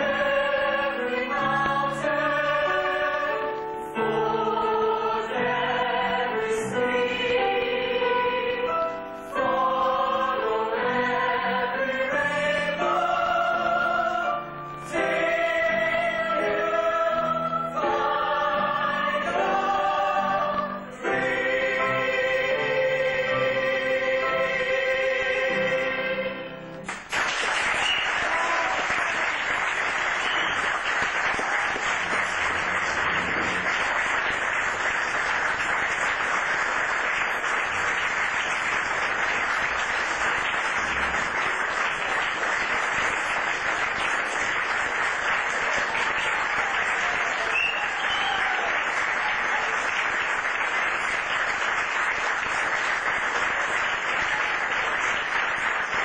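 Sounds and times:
audience clapping: 0:26.7 - 0:56.0.

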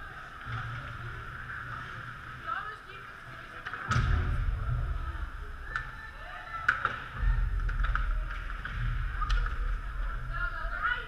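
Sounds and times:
hockey sticks and puck clacking: 0:03.5 - 0:04.0, 0:06.6 - 0:10.2
low rumble: 0:03.9 - 0:05.8.

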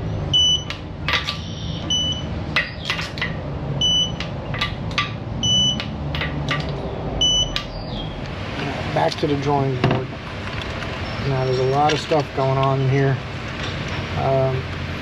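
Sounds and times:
low steady hum: 0:00.0 - 0:15.0
short electronic beeps: 0:00.1 - 0:00.7, 0:01.4 - 0:02.3, 0:03.8 - 0:04.2, 0:05.4 - 0:05.8, 0:07.2 - 0:07.8.

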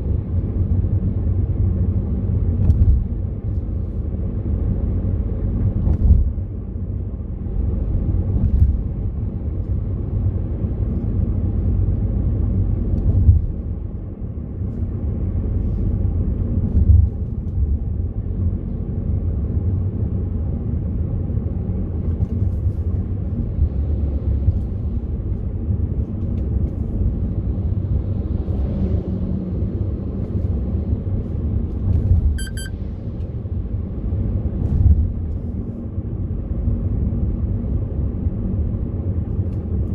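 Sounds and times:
car engine and tyre rumble: 0:00.0 - 0:39.9
short high electronic beep: 0:32.4 - 0:32.8.

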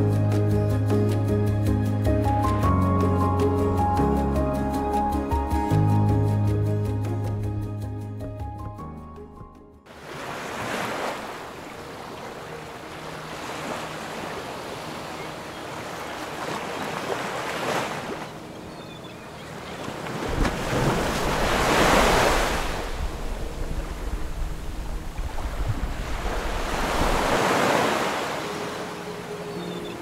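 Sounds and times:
sea waves washing: 0:09.9 - 0:30.0
wind rumble on microphone: 0:20.2 - 0:27.4.

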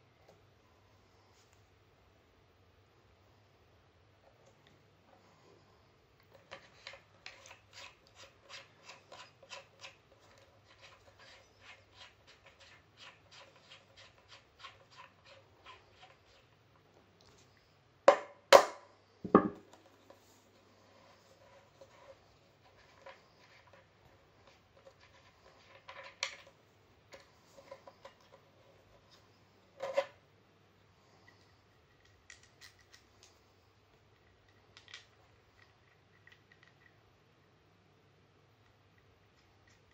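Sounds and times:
sharp knocks on wood: 0:18.1 - 0:19.6.

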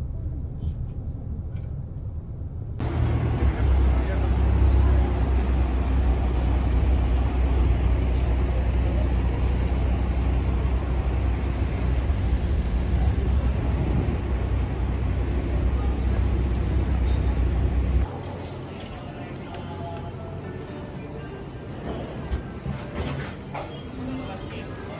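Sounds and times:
motor traffic rumble: 0:00.0 - 0:20.6
idling bus engines: 0:02.8 - 0:20.6.

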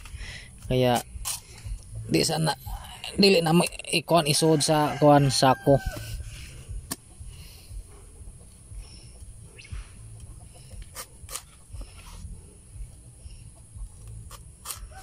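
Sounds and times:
chickens clucking: 0:06.0 - 0:15.0.

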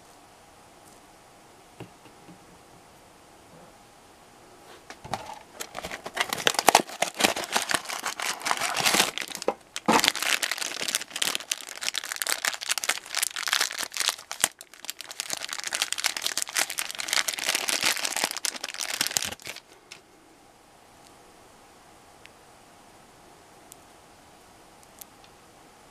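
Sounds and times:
plastic wrapper crinkling: 0:05.1 - 0:20.0.

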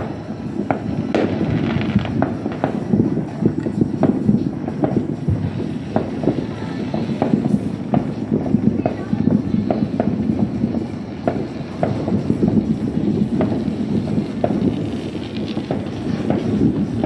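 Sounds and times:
fireworks bangs and crackles: 0:00.0 - 0:17.0.

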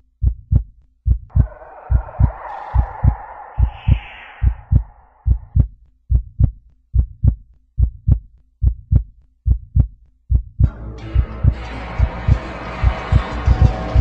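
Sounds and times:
heartbeat thuds: 0:00.1 - 0:14.0.

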